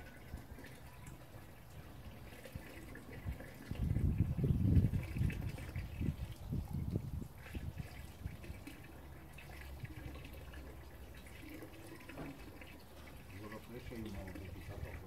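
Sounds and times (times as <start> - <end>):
water splashing and trickling: 0.0 - 15.0.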